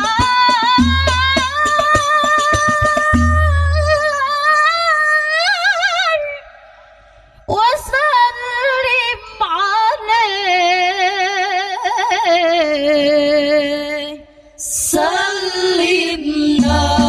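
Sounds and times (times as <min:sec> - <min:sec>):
frame drum beats: 0:00.0 - 0:03.7, 0:16.6 - 0:17.0.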